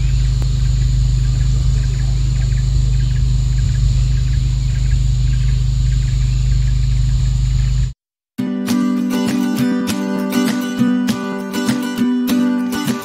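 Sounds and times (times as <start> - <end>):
high insect buzz: 0.0 - 8.0
low drone: 0.0 - 8.0.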